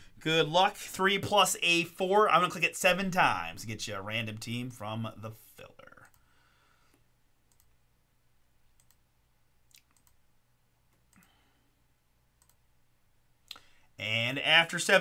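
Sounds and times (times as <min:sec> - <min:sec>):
computer mouse clicks: 0:07.5 - 0:07.8, 0:08.7 - 0:09.0, 0:09.7 - 0:10.2, 0:12.4 - 0:12.6.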